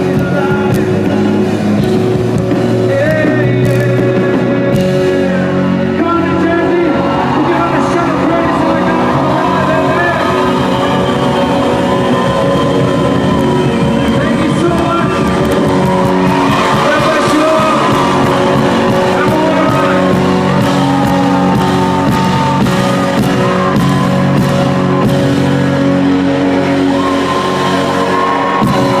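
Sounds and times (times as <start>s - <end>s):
keyboard chords: 0.0s - 29.0s
scattered clapping: 10.6s - 24.4s.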